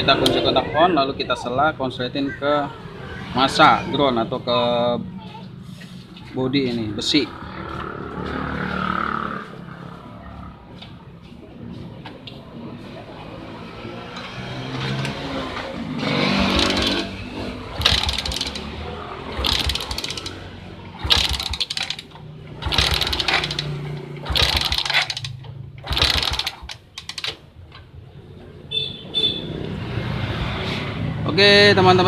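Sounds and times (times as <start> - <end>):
motorcycle engine cranking: 16.0 - 27.6.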